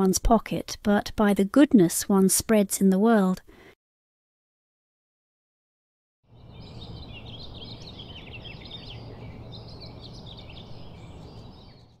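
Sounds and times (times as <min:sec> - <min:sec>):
songbirds chirping: 0:06.3 - 0:12.0.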